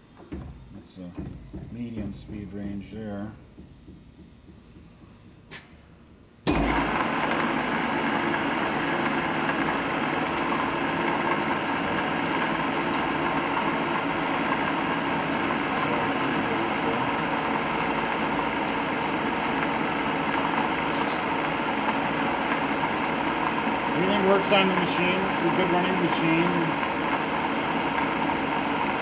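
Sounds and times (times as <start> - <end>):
lathe running hum: 6.5 - 29.0.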